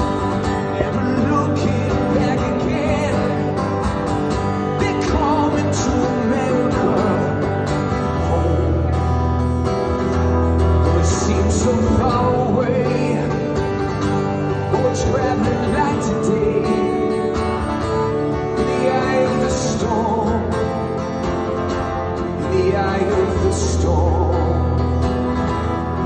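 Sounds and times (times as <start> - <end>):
strummed acoustic guitar: 0.0 - 26.0
man singing into microphone: 0.5 - 9.2, 10.8 - 17.4, 18.4 - 21.0, 22.2 - 24.8.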